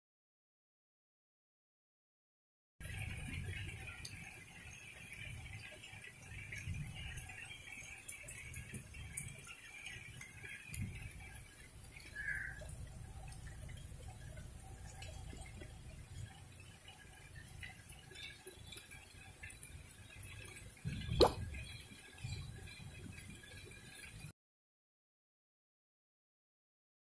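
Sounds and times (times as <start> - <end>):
drips and ticks of drops: 2.8 - 24.3
rain falling: 2.8 - 24.3.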